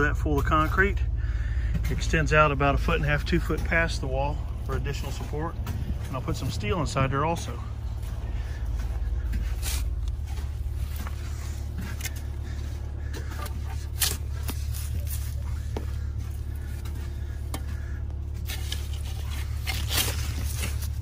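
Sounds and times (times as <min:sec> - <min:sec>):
low engine rumble: 0:00.0 - 0:21.0
shovel scraping soil: 0:09.3 - 0:15.4, 0:18.4 - 0:21.0.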